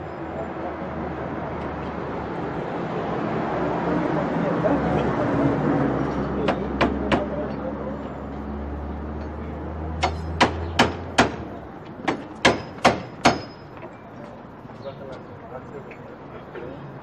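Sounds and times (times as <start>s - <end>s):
hammer striking chisel: 10.0s - 13.9s.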